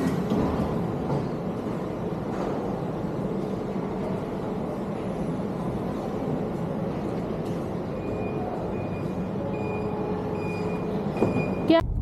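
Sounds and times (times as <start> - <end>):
engine and traffic noise: 0.0 - 12.0
reversing alarm beeps: 7.9 - 11.8.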